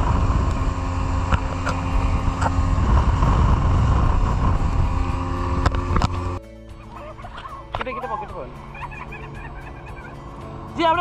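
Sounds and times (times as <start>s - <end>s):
wind rumble on microphone: 0.0s - 6.4s
outboard motor running: 0.0s - 11.0s.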